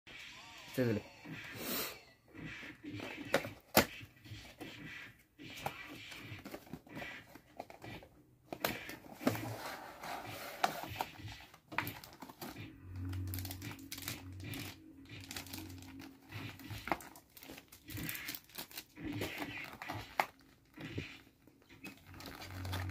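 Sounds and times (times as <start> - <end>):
plastic wrap crinkling: 11.9 - 20.8, 21.8 - 22.9.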